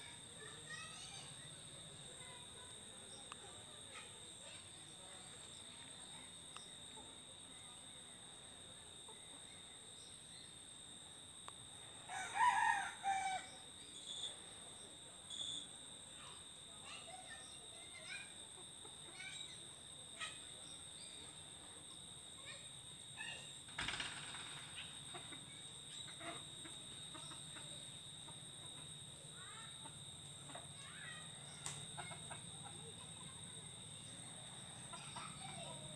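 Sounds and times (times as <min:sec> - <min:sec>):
high insect drone: 0:00.0 - 0:35.9
rooster crowing: 0:12.1 - 0:13.6.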